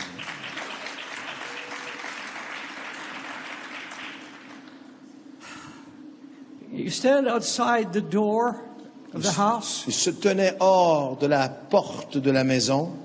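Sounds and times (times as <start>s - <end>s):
congregation applauding: 0.0s - 4.9s.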